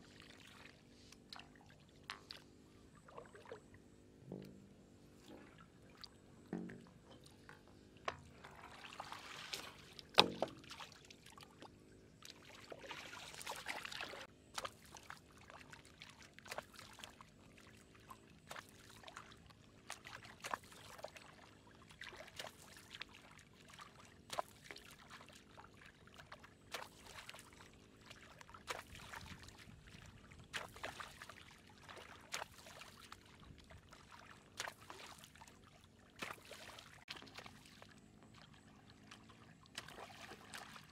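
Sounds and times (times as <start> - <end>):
water sloshing and pouring: 0.0 - 40.9
hoe chopping into muddy water: 10.1 - 10.8.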